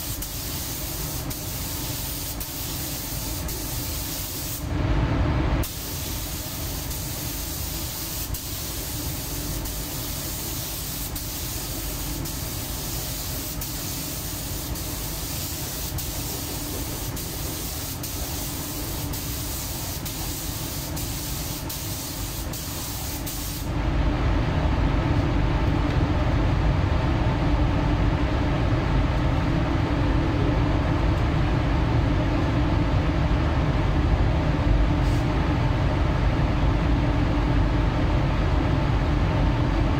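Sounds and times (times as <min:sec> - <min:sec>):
paint spray gun hissing: 0:00.0 - 0:04.6, 0:05.6 - 0:23.7.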